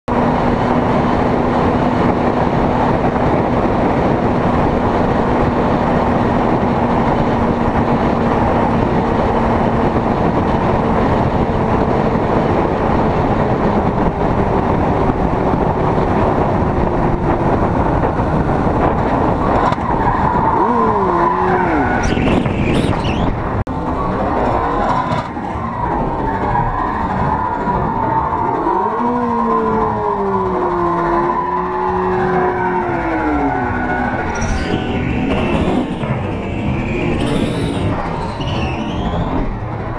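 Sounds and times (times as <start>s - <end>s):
wind and road roar: 0.0s - 39.9s
motorcycle engine drone: 0.1s - 39.9s
wavering tyre squeal: 19.2s - 39.9s.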